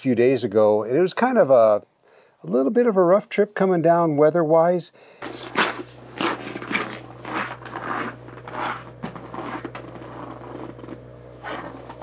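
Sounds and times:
footsteps crunching through snow: 0:05.2 - 0:12.0
low hum: 0:05.2 - 0:12.0.

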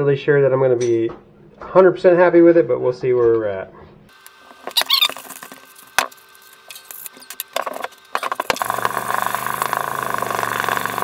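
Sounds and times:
small power tool motor humming: 0:04.1 - 0:11.0
handling squeaks and clicks: 0:04.6 - 0:05.7.

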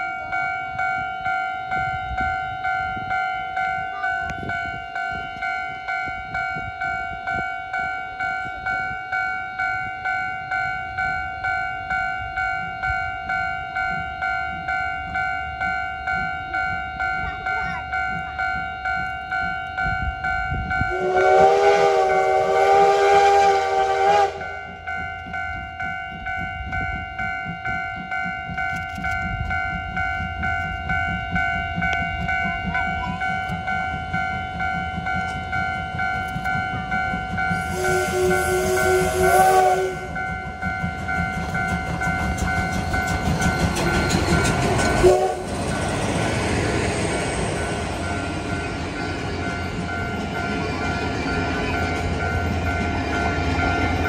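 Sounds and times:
level-crossing bell dinging: 0:00.0 - 0:21.3, 0:24.4 - 0:54.0
steam locomotive chime whistle: 0:00.0 - 0:54.0
train coaches rolling: 0:00.0 - 0:54.0
locomotive rumbling past: 0:10.8 - 0:54.0.

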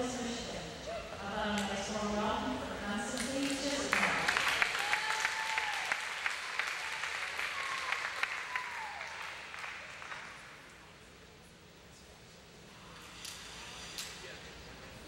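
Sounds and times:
audience applauding: 0:03.4 - 0:10.7.

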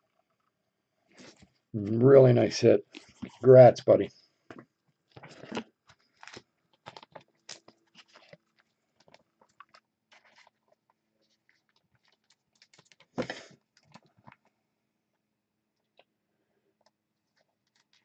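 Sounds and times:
soft rustles of handling: 0:01.0 - 0:14.6.

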